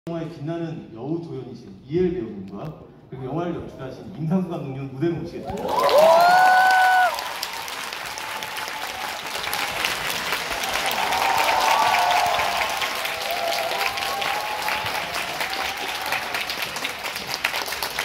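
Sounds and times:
large audience applauding: 0:05.4 - 0:18.0.

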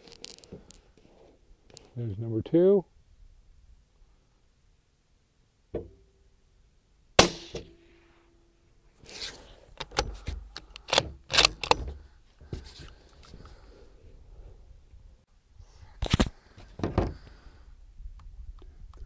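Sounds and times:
suppressed rifle shot: 0:07.2 - 0:08.0
rifle bolt clacking: 0:09.8 - 0:11.9.

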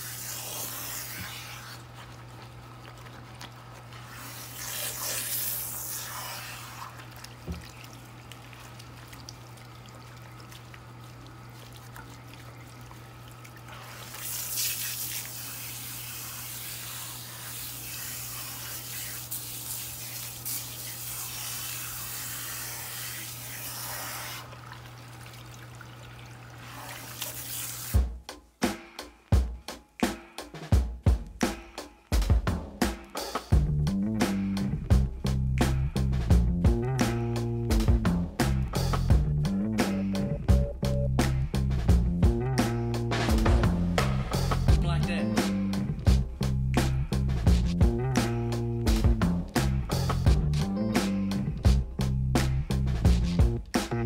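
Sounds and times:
water spraying onto wet hair: 0:00.0 - 0:01.8, 0:04.0 - 0:08.4, 0:13.6 - 0:24.6, 0:26.2 - 0:28.0
low hum: 0:33.6 - 0:42.6.

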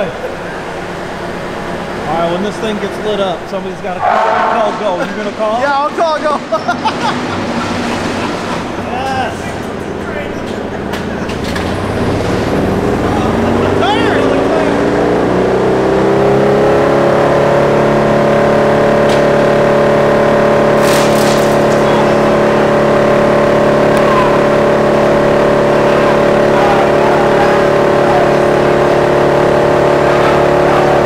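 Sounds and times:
wood chipper humming: 0:04.8 - 0:31.0.

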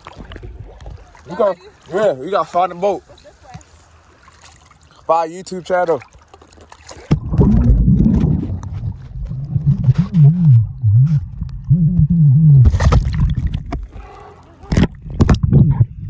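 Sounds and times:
underwater rumble of moving water: 0:00.0 - 0:01.4, 0:07.1 - 0:16.0
water splashing: 0:00.0 - 0:11.8, 0:12.6 - 0:15.5
muffled voice through water: 0:13.9 - 0:14.9.

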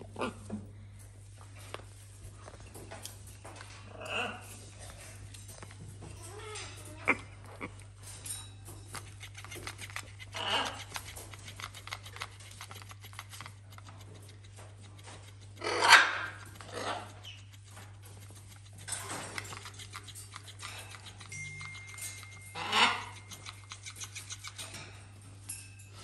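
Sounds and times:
parrot scratching plush toy: 0:08.7 - 0:25.0.

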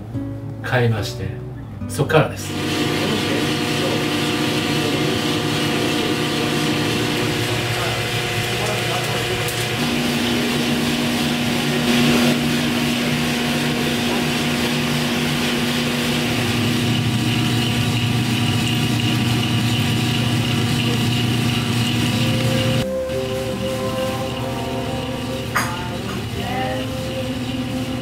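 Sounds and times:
coffee roaster machine hum: 0:02.4 - 0:28.0.

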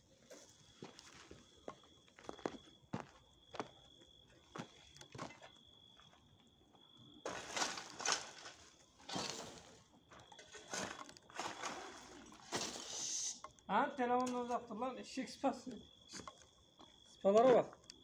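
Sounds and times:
digging tool scraping hard ground: 0:07.3 - 0:09.8, 0:10.5 - 0:13.1.

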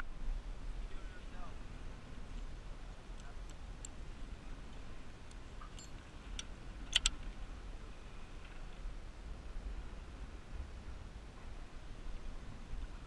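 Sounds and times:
wind rumble on microphone: 0:00.0 - 0:13.0
metal rigging clicks and clinks: 0:05.3 - 0:07.2.

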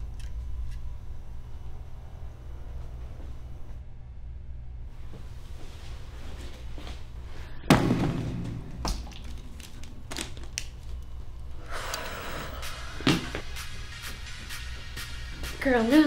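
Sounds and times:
steady low hum: 0:00.0 - 0:16.0
loud thud: 0:07.7 - 0:08.9.

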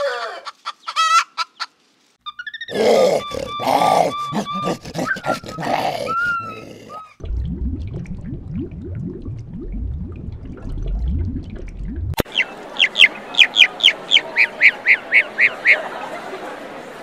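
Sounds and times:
short grunts: 0:02.7 - 0:07.1
zebra barking: 0:02.7 - 0:07.1
water gurgling with bubbles: 0:03.3 - 0:12.2.

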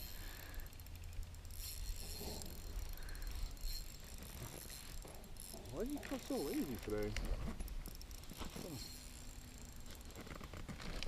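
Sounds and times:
fishing reel drag ticking buzz: 0:00.0 - 0:11.0.

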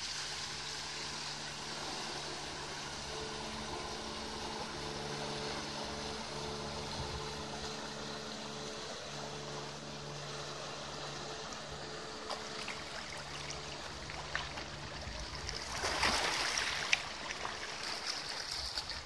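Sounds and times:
boat engine humming: 0:00.0 - 0:19.0
wake splashing on riverbank: 0:12.2 - 0:19.0.

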